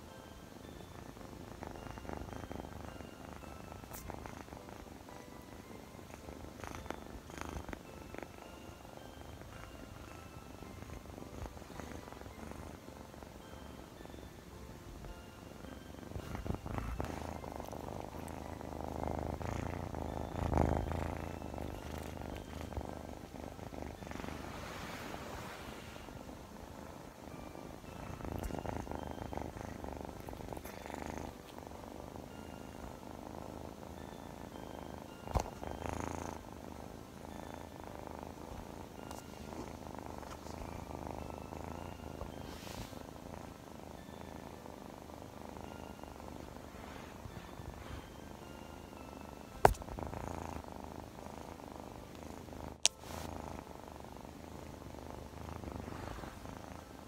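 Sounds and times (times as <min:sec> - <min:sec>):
kitten purring: 0:00.0 - 0:57.0
fur rustling against microphone: 0:52.9 - 0:53.3, 0:55.6 - 0:56.6.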